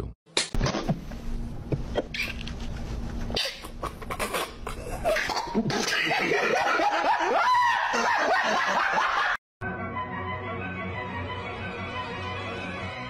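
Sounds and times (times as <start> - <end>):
cough-like snorts: 3.4 - 6.1
man's stifled laughter: 3.5 - 9.4.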